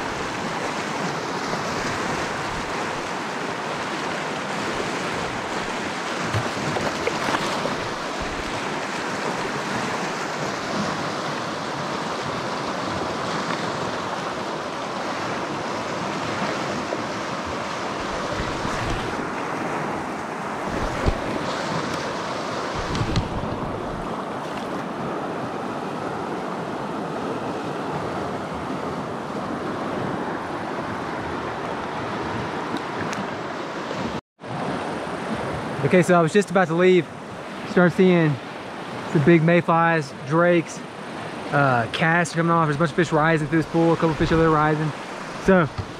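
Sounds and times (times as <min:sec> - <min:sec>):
stream rushing over rocks: 0:00.0 - 0:27.0, 0:37.7 - 0:45.9
wind buffeting microphone: 0:17.0 - 0:24.4.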